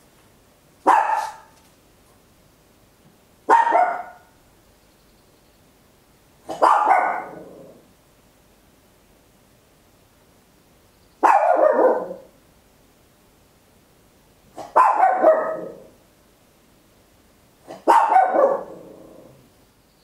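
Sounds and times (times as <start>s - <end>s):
small dog barking: 0.8s - 1.6s, 3.5s - 4.4s, 6.4s - 7.8s, 11.2s - 12.4s, 14.5s - 16.0s, 17.6s - 19.4s.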